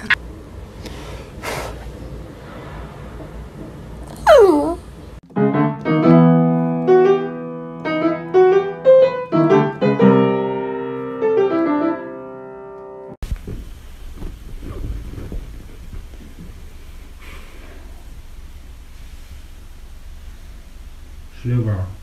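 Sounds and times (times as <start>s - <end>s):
piano melody: 5.2s - 13.2s.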